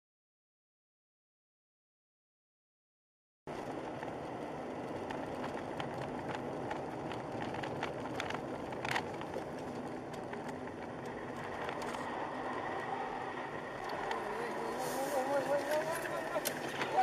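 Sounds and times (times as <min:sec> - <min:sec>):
car road and engine noise: 0:03.5 - 0:17.0.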